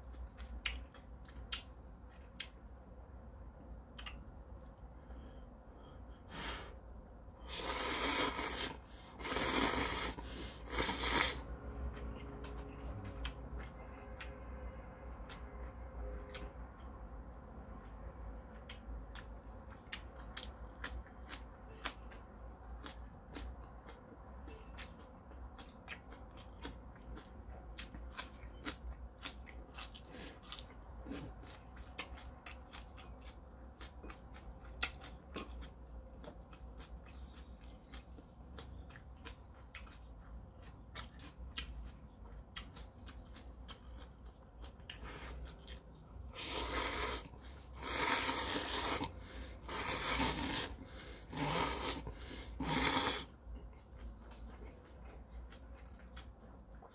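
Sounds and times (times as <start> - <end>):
chewing with wet mouth clicks: 0.0 - 2.9, 3.8 - 4.9, 11.9 - 56.9
noodle slurping: 7.4 - 11.4, 46.4 - 53.3.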